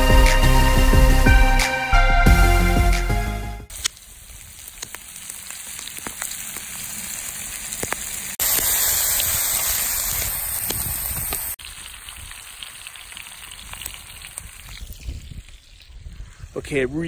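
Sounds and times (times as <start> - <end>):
fat popping and crackling: 3.7 - 16.1
steaks sizzling in skillet: 3.7 - 16.4.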